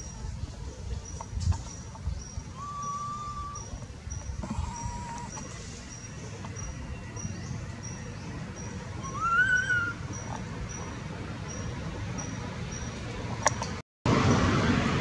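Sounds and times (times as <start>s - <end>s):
rising and falling whistled call: 2.5s - 3.8s, 9.0s - 10.0s.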